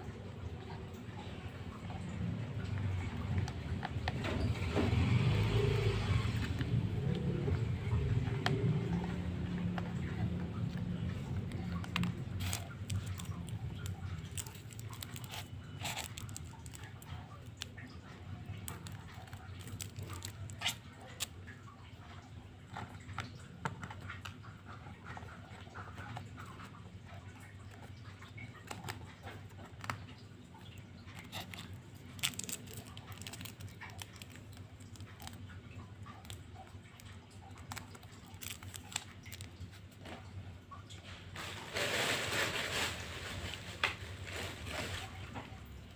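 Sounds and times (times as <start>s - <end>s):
low steady hum: 0.0s - 45.9s
paper peeling and rubbing: 3.0s - 17.7s, 18.6s - 21.3s, 31.1s - 35.4s, 37.6s - 39.6s.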